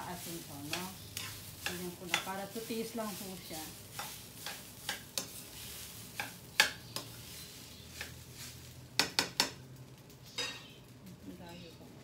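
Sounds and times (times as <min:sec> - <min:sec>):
metal utensil clinking on pan: 0:10.3 - 0:10.8.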